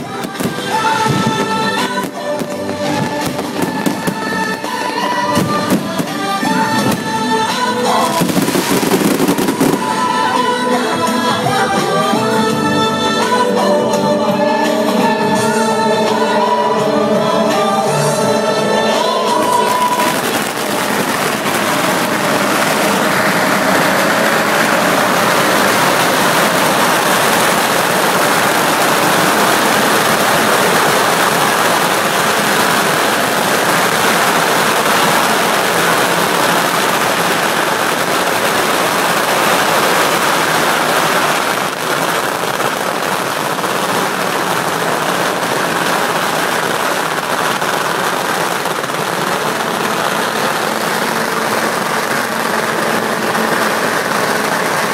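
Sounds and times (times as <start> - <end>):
firecrackers crackling: 0.0 - 54.9.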